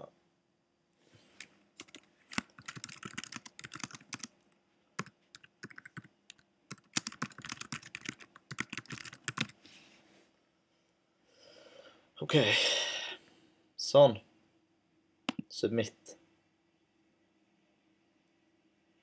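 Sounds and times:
typing on computer keyboard: 1.8s - 4.3s, 5.0s - 9.6s.

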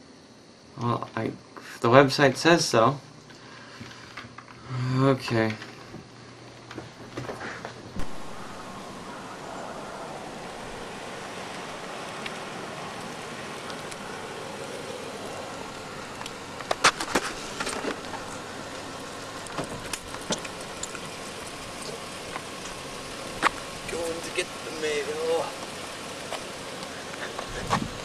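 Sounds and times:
car engine and tyre noise: 5.6s - 28.0s.

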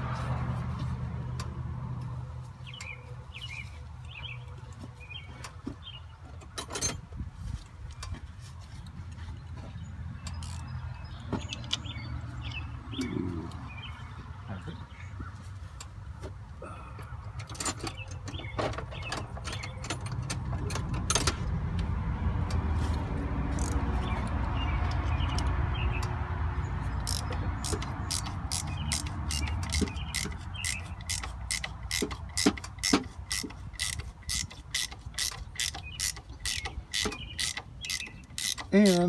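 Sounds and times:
ratchet wrench clicking: 10.3s - 10.7s, 23.5s - 23.8s, 27.0s - 39.0s.

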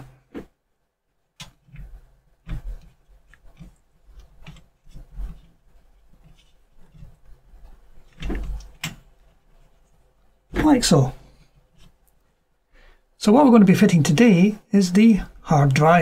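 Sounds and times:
plastic sheet scraping metal frame: 1.6s - 9.8s.

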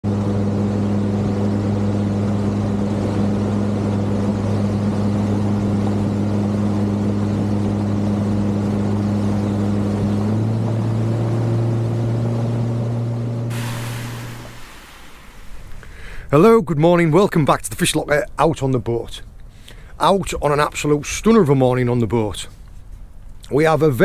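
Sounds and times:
boat engine humming: 0.1s - 16.4s.

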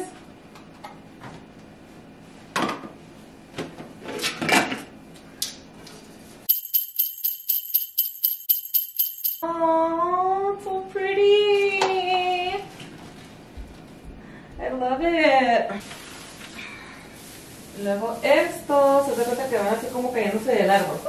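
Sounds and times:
sleigh bells jingling: 6.5s - 9.4s.

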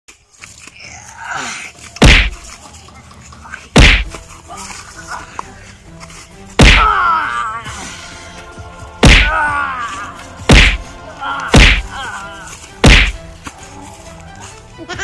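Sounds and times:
background music: 0.1s - 15.0s
heavy blows on a body: 2.0s - 2.4s, 3.7s - 4.2s, 6.5s - 7.2s, 9.0s - 13.4s.

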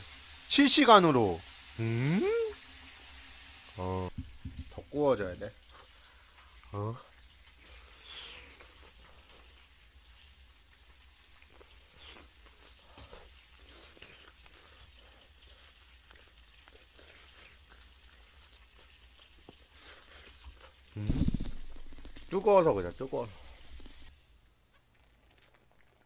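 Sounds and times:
meat sizzling on a grill pan: 0.0s - 13.6s, 20.6s - 24.1s
low voice: 1.8s - 2.6s.

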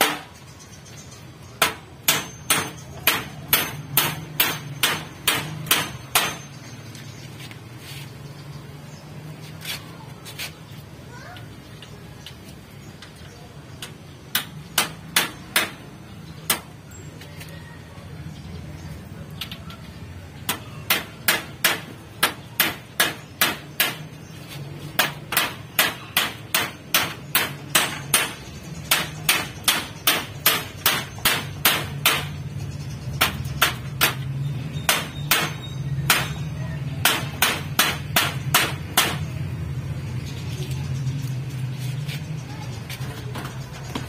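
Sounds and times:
hammer striking: 0.0s - 0.4s, 1.6s - 6.6s, 13.8s - 15.9s, 16.5s - 16.7s, 20.5s - 24.1s, 25.0s - 32.4s, 33.2s - 39.3s.

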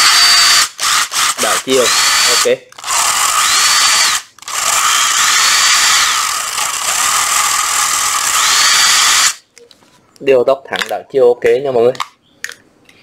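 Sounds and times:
impact driver motor whine: 0.0s - 9.4s.

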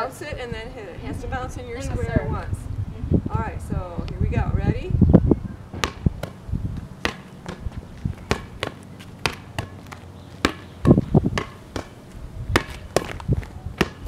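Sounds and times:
rubber ball bouncing on concrete: 5.7s - 6.4s, 7.0s - 14.0s.

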